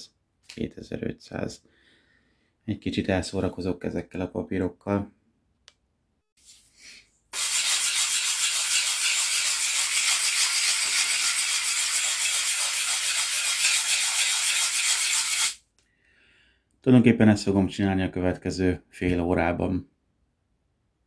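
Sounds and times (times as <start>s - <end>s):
sandpaper rubbing on steel: 7.3s - 15.6s.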